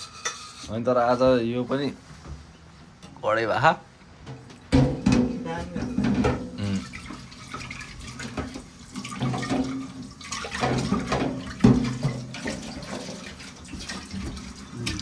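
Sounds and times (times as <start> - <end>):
pot being scrubbed: 0.0 - 0.8, 5.4 - 15.0
tap water running into a pot: 5.9 - 15.0.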